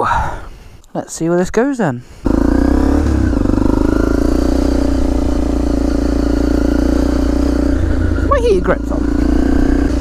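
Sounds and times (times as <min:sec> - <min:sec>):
motorcycle engine running: 0:02.2 - 0:10.0.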